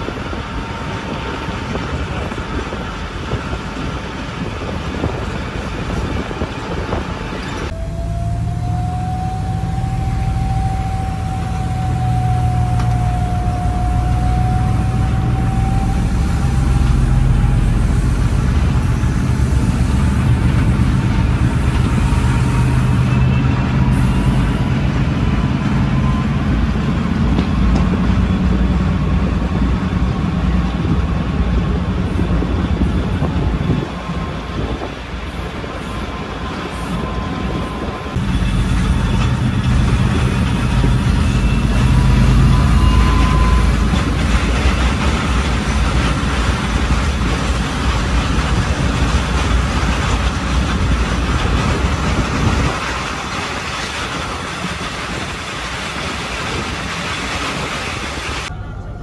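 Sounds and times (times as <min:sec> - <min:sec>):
diesel train engine hum: 0:00.0 - 0:59.0
rising whine: 0:07.4 - 0:31.0.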